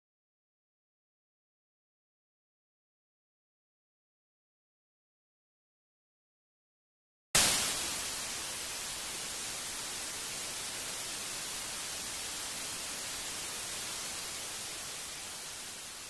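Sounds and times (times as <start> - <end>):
tv static hiss: 7.4 - 16.0.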